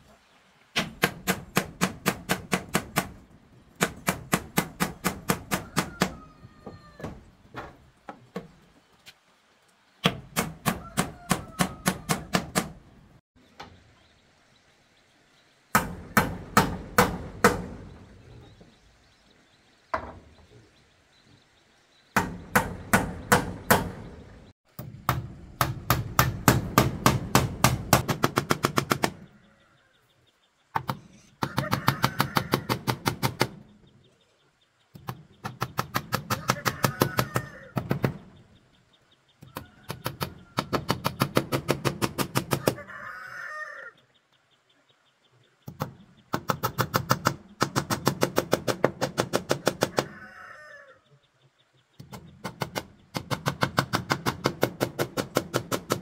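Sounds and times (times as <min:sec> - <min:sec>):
rapid strikes on wood: 0:00.8 - 0:03.2, 0:03.8 - 0:06.2, 0:15.8 - 0:17.9, 0:22.2 - 0:24.1, 0:25.1 - 0:29.2, 0:35.0 - 0:38.3, 0:39.5 - 0:42.8, 0:45.7 - 0:50.1, 0:52.0 - 0:56.0.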